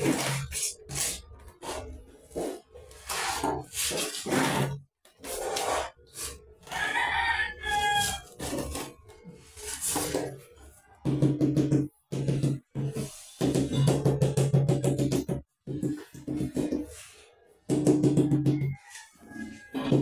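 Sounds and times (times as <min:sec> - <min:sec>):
trowel scraping tiles: 0:00.0 - 0:10.6.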